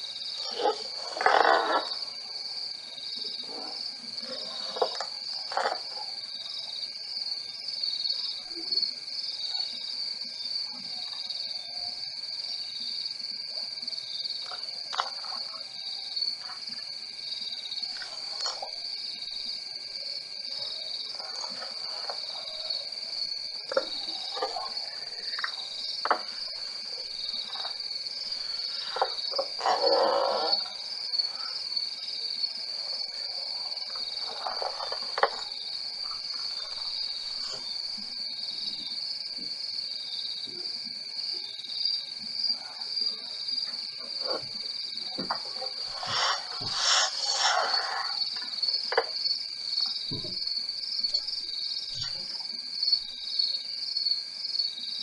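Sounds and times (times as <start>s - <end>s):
crickets chirring: 0.0s - 55.0s.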